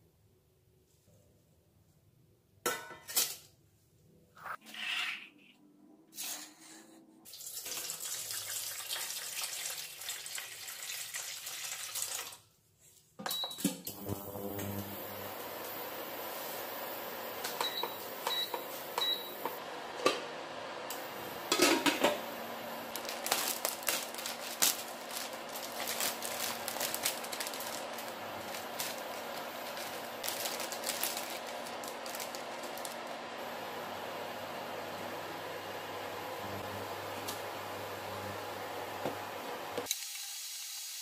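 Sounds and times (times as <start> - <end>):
cooker fan humming: 13.9 - 40.6
cooktop touch panel beeping: 17.1 - 19.6
plastic wrapper crinkling: 22.8 - 33.2.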